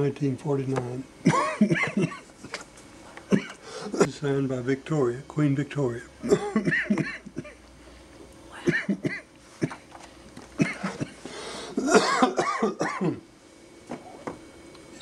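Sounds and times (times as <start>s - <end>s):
person clearing throat: 1.2s - 2.2s, 3.3s - 4.1s, 6.2s - 7.6s, 8.6s - 9.8s, 10.6s - 11.2s, 11.8s - 13.2s
person coughing: 1.2s - 2.2s, 3.3s - 4.1s, 6.2s - 7.6s, 8.6s - 9.8s, 10.6s - 11.2s, 11.8s - 13.2s.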